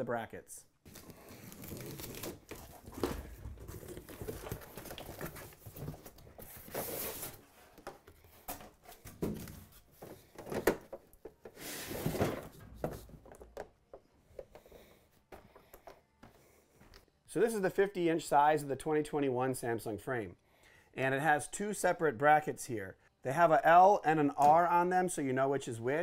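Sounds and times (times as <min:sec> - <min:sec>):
packing tape tearing: 0:00.9 - 0:07.4
cardboard rustling and scraping: 0:00.9 - 0:10.6, 0:11.3 - 0:13.3.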